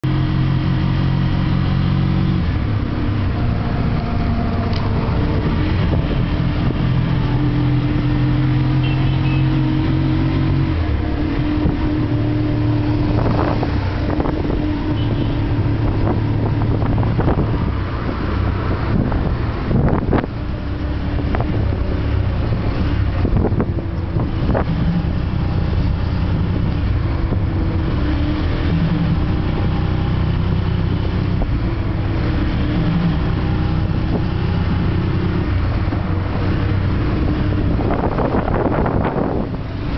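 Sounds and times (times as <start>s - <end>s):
engine running: 0.0s - 39.9s.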